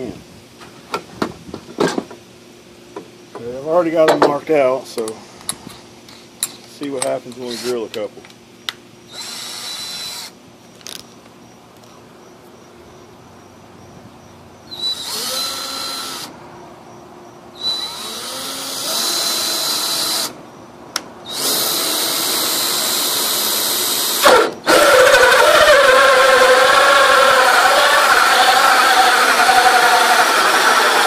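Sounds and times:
power drill with hole saw whining: 7.3s - 7.9s, 9.1s - 10.4s, 14.7s - 16.3s, 17.6s - 20.4s, 21.3s - 31.0s
saw cutting into wood: 21.3s - 31.0s.

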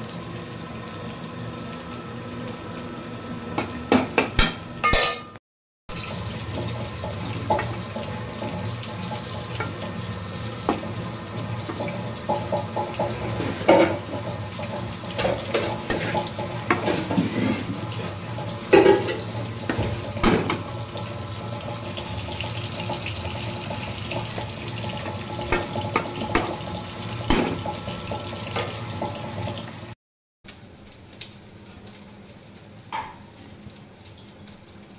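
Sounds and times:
greens frying with a hiss: 5.9s - 34.9s
metal spatula scraping pan: 15.3s - 17.8s.

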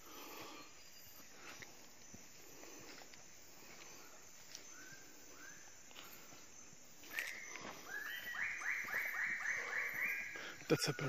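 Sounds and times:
bird calling repeated arched notes: 7.0s - 11.0s.

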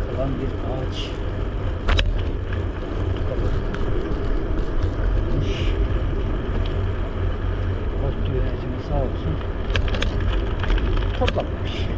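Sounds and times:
wind buffeting microphone: 0.0s - 11.9s
tyre rumble on asphalt: 1.2s - 8.0s, 9.3s - 11.6s
sharp clatter: 9.5s - 11.9s.

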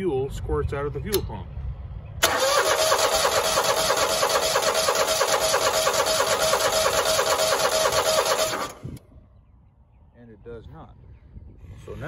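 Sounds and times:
mower engine cranking: 2.2s - 9.0s.

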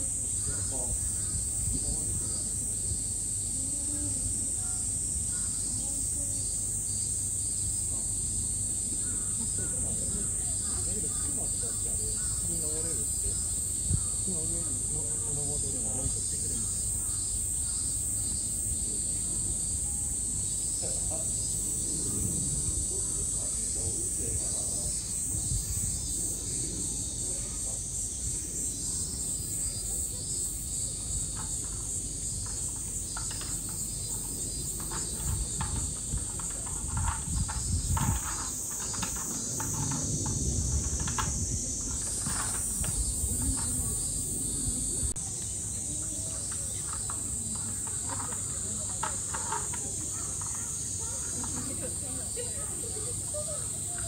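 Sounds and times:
cicadas droning: 0.0s - 54.0s
murmur of people talking: 0.0s - 54.0s
distant voices: 7.6s - 54.0s.

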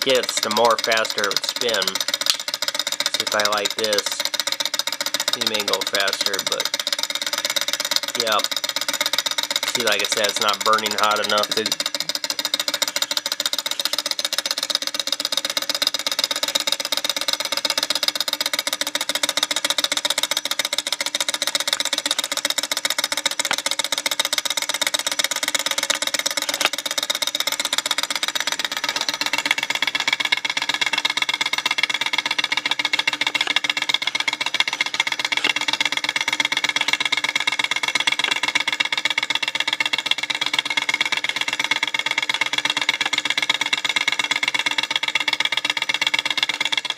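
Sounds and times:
person speaking: 0.0s - 2.0s, 3.2s - 4.3s, 5.4s - 6.7s, 8.2s - 8.5s, 9.7s - 12.1s
model engine rapid clatter: 0.0s - 46.9s.

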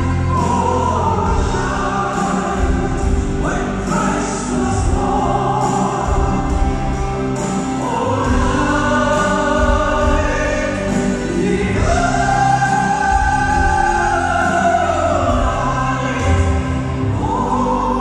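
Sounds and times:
live band: 0.0s - 18.0s
piano: 0.0s - 18.0s
woman singing: 7.8s - 18.0s.

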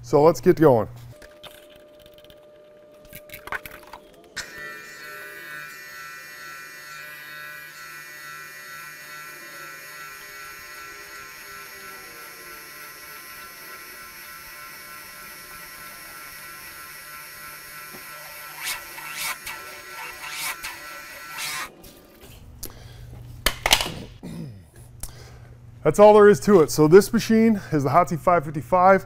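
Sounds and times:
pressure washer humming: 4.4s - 21.7s.

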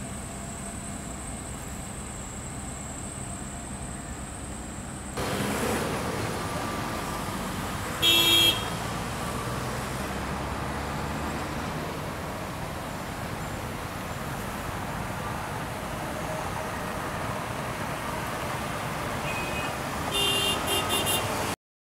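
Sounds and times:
road traffic: 0.0s - 21.6s
vehicle horn toot: 8.0s - 8.8s, 19.2s - 21.4s.

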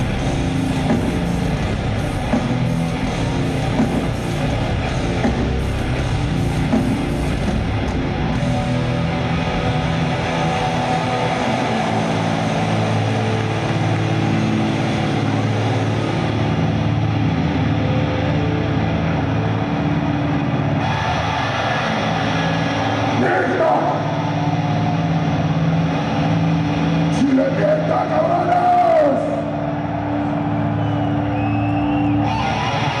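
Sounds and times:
bass guitar chords: 0.0s - 28.4s
distorted electric guitars: 0.0s - 33.0s.

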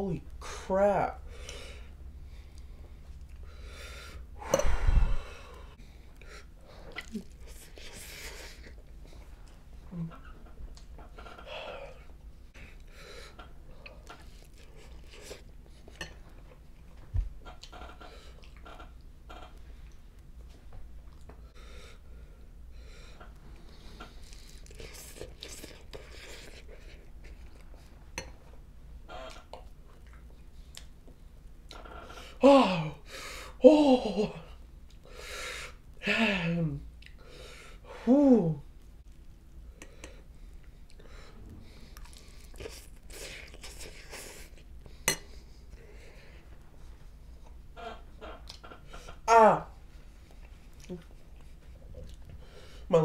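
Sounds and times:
man breathing: 1.2s - 6.9s
man exhaling with a groan: 4.4s - 5.8s
person chewing noodles: 5.5s - 10.9s, 12.7s - 16.6s, 23.2s - 28.2s, 38.8s - 49.2s, 50.0s - 52.7s.

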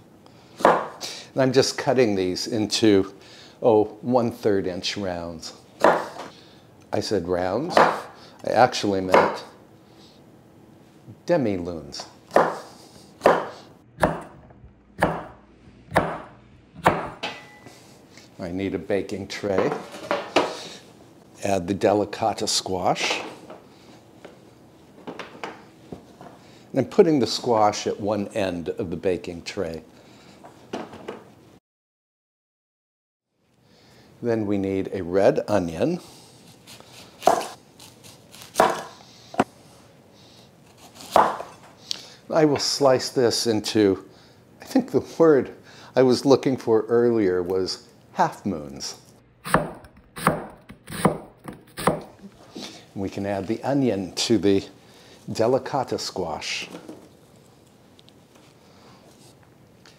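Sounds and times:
knife cutting onion on wooden board: 12.3s - 14.4s, 15.0s - 15.3s, 15.9s - 17.2s, 36.5s - 39.5s, 40.6s - 41.6s, 49.4s - 52.2s.

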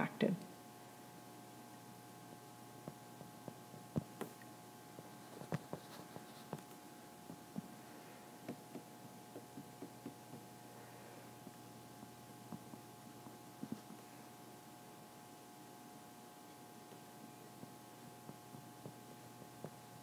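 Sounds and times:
low electrical hum: 0.0s - 20.0s
stylus tapping on tablet screen: 8.4s - 10.6s.

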